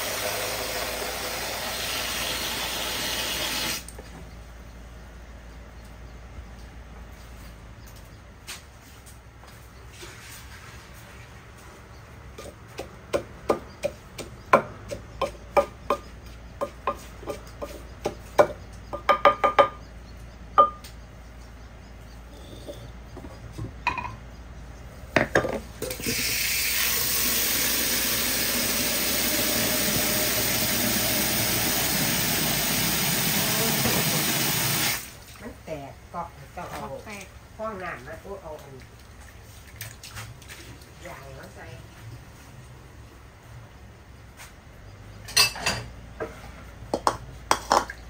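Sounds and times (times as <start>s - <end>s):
tap water running into a basin: 0.0s - 3.9s, 25.9s - 35.4s
kitchen things clinking on a counter: 22.5s - 24.2s, 45.2s - 45.9s, 47.0s - 48.0s.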